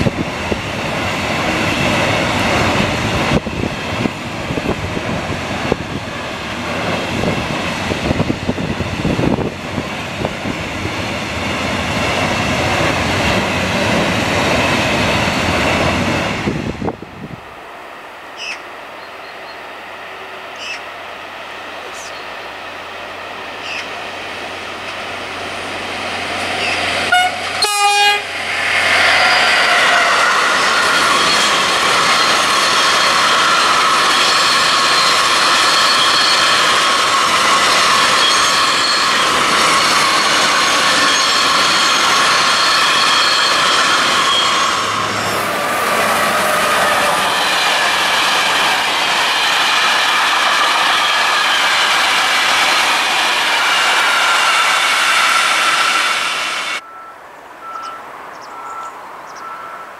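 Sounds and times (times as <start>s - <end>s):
wagons rumbling on rails: 0.0s - 59.9s
train horn blast: 27.1s - 28.4s
wheel squeal: 28.6s - 48.4s.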